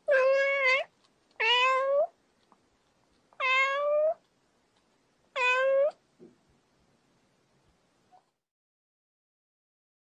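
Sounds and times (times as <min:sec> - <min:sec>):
cat meowing: 0:00.0 - 0:02.2, 0:03.4 - 0:04.3, 0:05.4 - 0:06.0.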